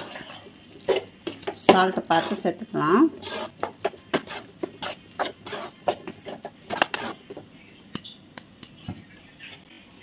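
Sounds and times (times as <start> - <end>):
metal spoon scraping metal pan: 0.0 - 1.1, 1.7 - 7.4.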